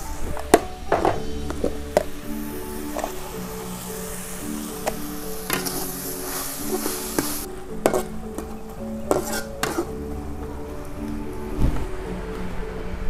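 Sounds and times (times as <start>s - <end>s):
soft melody: 0.0s - 13.0s
frying sizzle: 0.1s - 8.5s
metal spatula scraping a wok: 4.8s - 10.0s.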